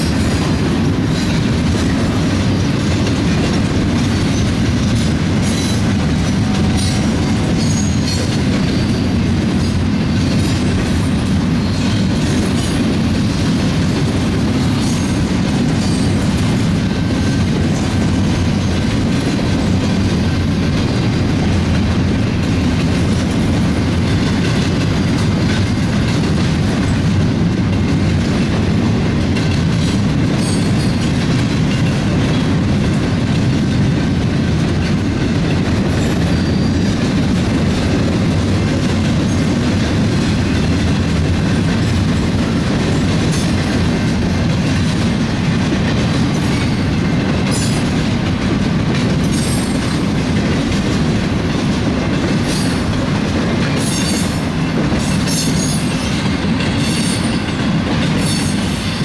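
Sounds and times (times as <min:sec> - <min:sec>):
clickety-clack over rail joints: 0:00.0 - 0:59.0
train wheels rumbling on rails: 0:00.0 - 0:59.0
high-pitched wheel squeals: 0:06.8 - 0:09.1, 0:36.3 - 0:36.9.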